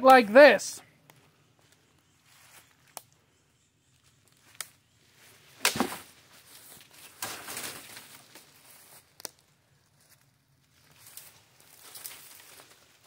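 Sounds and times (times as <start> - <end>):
twigs cracking: 1.0 - 3.2, 4.0 - 4.8, 5.6 - 13.0
leaves rustling: 4.0 - 13.0
blade striking branch: 5.6 - 6.0.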